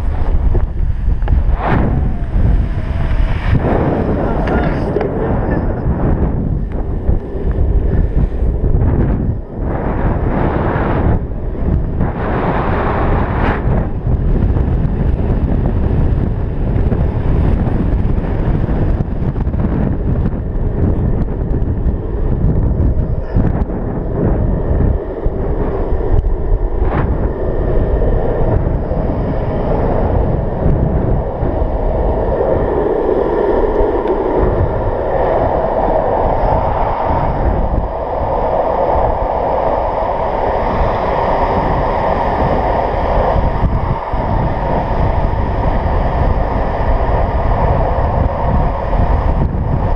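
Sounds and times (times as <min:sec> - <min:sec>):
wheels rolling on asphalt: 0:00.0 - 0:31.8
wind buffeting microphone: 0:00.0 - 0:49.9.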